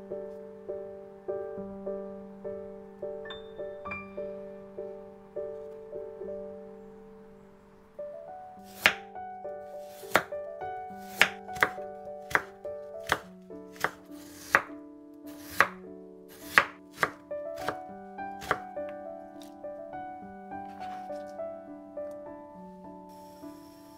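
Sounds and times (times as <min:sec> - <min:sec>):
background music: 0:00.0 - 0:23.9
knife slicing on wooden board: 0:10.0 - 0:10.3, 0:15.3 - 0:17.8, 0:18.4 - 0:18.6.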